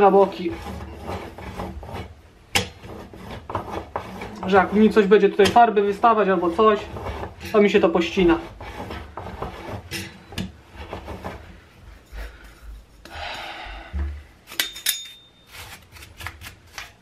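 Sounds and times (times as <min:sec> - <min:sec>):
brake disc scraping on wheel hub: 0:00.0 - 0:11.6
short metallic ring: 0:14.6 - 0:15.5.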